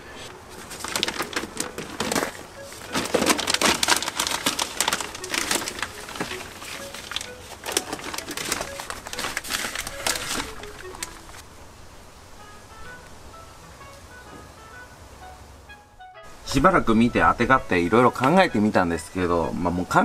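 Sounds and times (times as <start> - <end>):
plastic sheet crinkling: 0.2 - 11.4.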